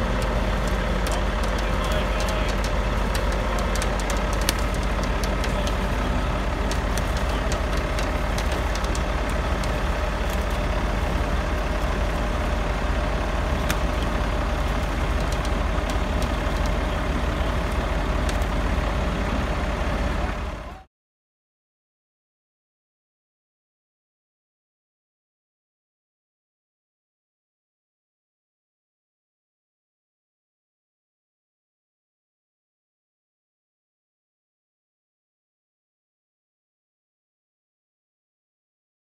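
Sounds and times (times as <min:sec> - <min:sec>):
diesel truck engine rumbling: 0:00.0 - 0:20.9
small clicks: 0:00.2 - 0:10.8.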